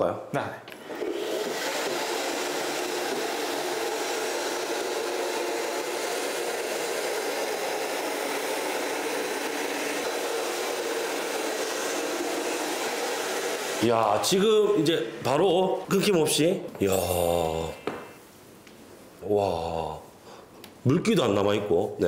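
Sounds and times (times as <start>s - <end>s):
floor scrubber running: 0.8s - 16.1s.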